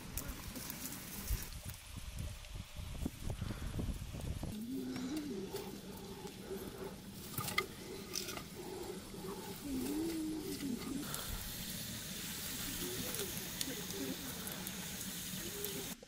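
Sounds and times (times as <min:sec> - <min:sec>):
sticks laid into a fire: 0:00.0 - 0:01.9, 0:04.2 - 0:11.3
low wavering animal calls: 0:04.6 - 0:11.2.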